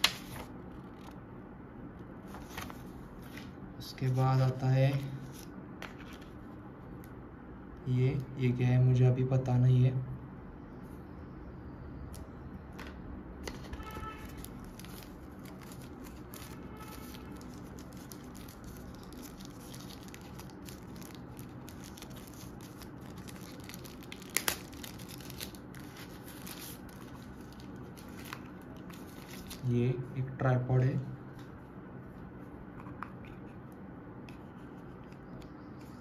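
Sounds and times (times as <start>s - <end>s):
wrapping crinkling and rustling: 13.5s - 29.7s.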